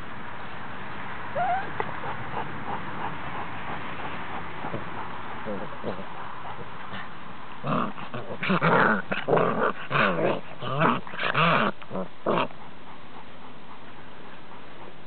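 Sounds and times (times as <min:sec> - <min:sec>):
puppies growling and yapping: 0:01.4 - 0:02.5, 0:03.7 - 0:12.7.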